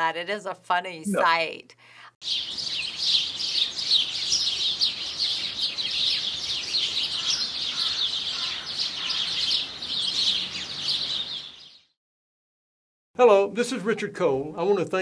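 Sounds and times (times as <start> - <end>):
songbirds chirping: 2.2 - 12.0.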